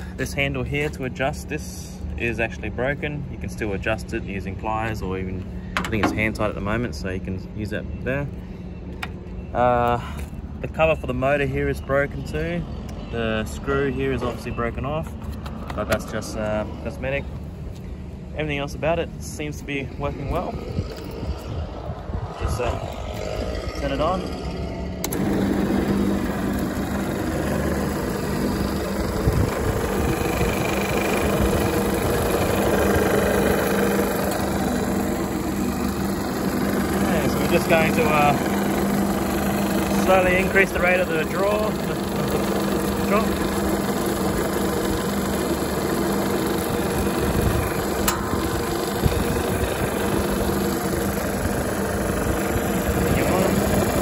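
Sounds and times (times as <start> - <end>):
band saw motor humming: 19.9 - 54.0.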